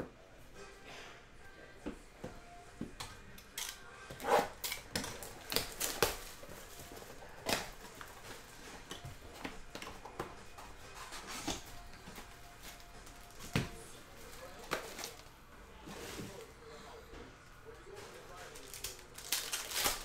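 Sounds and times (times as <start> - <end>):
cellophane crinkling: 4.6 - 9.0, 14.2 - 15.3, 18.1 - 20.0.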